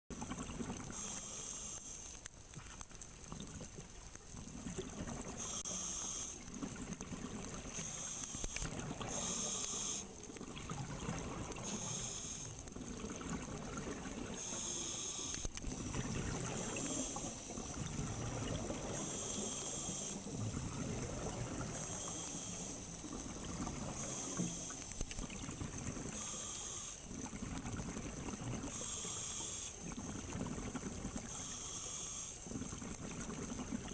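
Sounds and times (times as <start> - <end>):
regulator inhale hiss: 0.9 - 2.1
exhaled air bubbling: 2.3 - 5.7, 6.3 - 14.7, 15.3 - 33.9.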